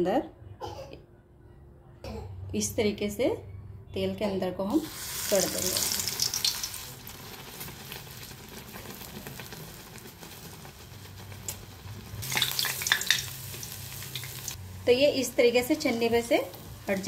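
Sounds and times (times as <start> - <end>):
batter sizzling in hot oil: 4.8 - 17.0.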